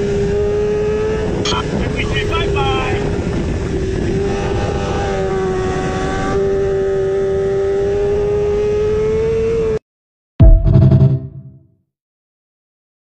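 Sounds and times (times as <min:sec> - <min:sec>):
heavy wind rush: 0:01.1 - 0:06.1.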